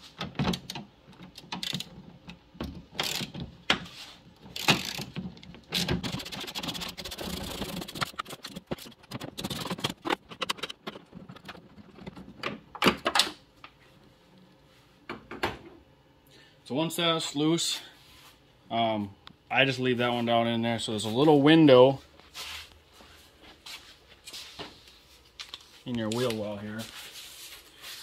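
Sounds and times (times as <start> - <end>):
hand ratchet clicking: 1.4 - 1.9, 3.0 - 3.4, 4.6 - 8.2.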